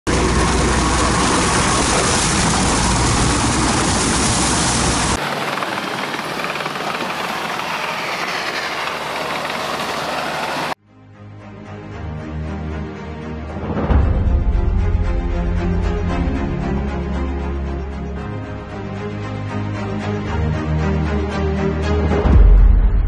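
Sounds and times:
tracked crawler engine rumbling: 0.1 - 5.9.

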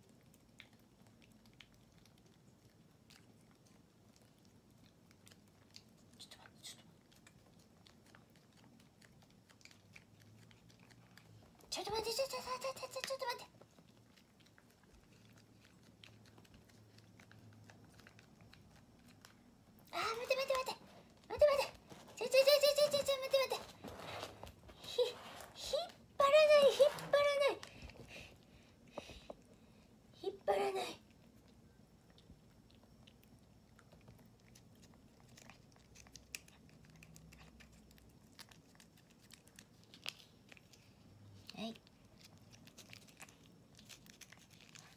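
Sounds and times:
cat licking and chewing: 0.0 - 26.2, 31.0 - 44.9.

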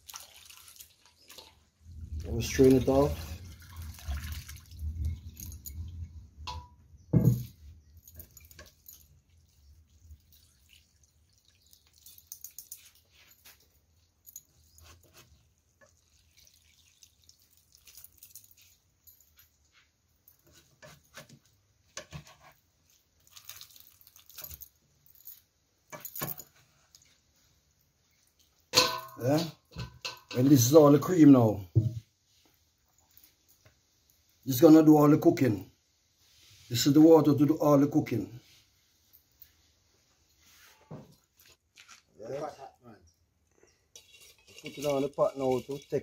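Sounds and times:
hands squeezing wet pulp: 0.0 - 5.4, 8.7 - 13.2, 14.6 - 19.0, 22.5 - 24.5
liquid pouring and dripping into pot: 0.0 - 13.6, 15.6 - 19.6, 22.8 - 24.6, 28.0 - 30.7, 43.9 - 46.0.

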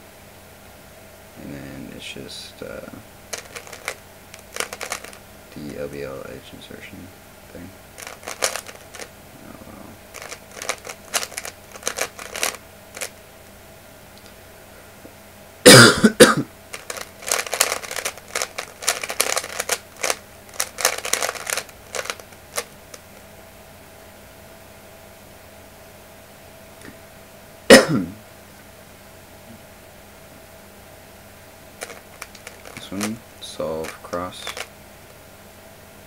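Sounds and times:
plastic puzzle cube clicking: 3.3 - 5.2, 8.0 - 9.1, 10.1 - 13.1, 16.7 - 23.0, 31.8 - 33.1, 33.8 - 34.7.

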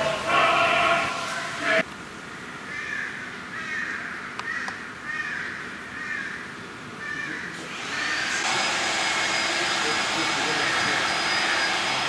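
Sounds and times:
bird calling harshly: 0.0 - 1.8, 2.5 - 8.5
motor winding up whine: 7.7 - 12.0.

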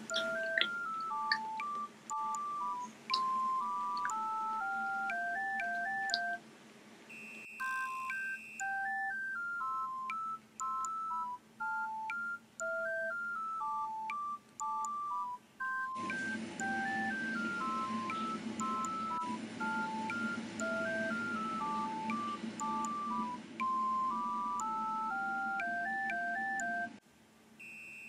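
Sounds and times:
electronic beeping melody: 0.0 - 6.4, 7.1 - 27.0.

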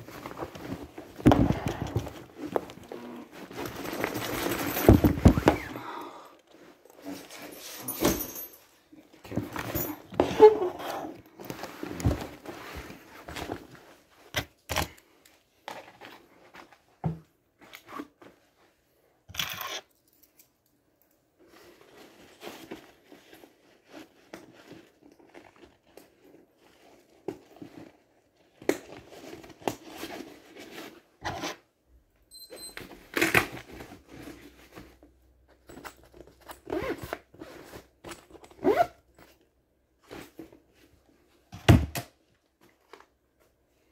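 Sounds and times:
gear packed into bag rustling: 0.0 - 5.8.

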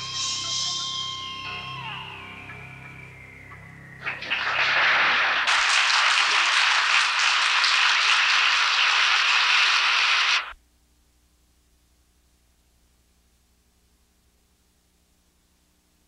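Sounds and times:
audience applauding: 4.0 - 10.6.

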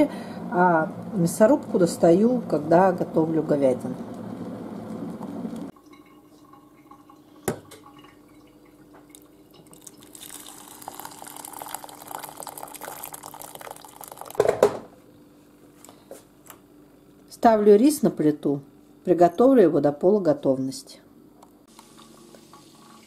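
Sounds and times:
boiling water pouring into pot: 3.8 - 14.7, 21.7 - 23.0.

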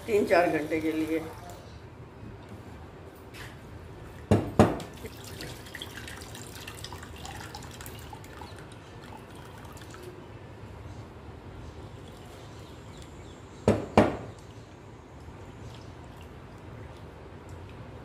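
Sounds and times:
water trickling and dripping: 4.9 - 10.2, 11.8 - 13.4, 14.3 - 18.0
sharp knocks: 13.7 - 14.3.

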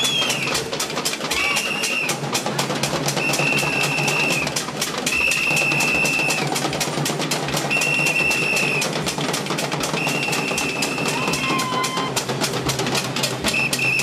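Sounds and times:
procession drums beating: 0.0 - 14.0
high-pitched whistle blasts: 3.2 - 4.5, 5.1 - 6.4, 7.7 - 8.8, 10.0 - 11.9, 13.5 - 14.0.

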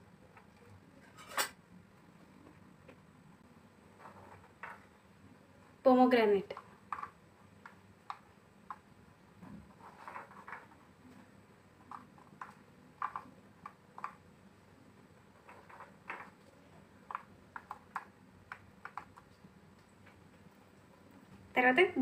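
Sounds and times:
small clicks and taps on plastic: 6.5 - 8.9, 17.0 - 20.2.

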